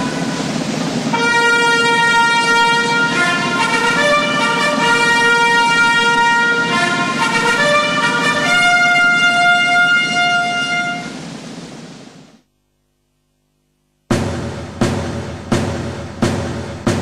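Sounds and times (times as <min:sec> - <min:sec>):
trumpet bugle call: 0:00.0 - 0:11.3.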